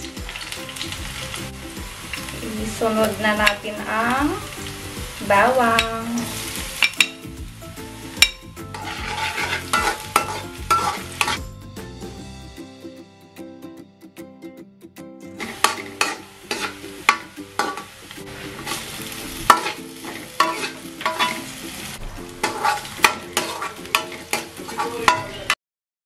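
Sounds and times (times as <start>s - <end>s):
oil sizzling: 0.0s - 13.0s, 15.3s - 25.6s
metal spoon scraping a wok: 8.6s - 11.5s, 15.4s - 21.6s, 22.2s - 25.6s.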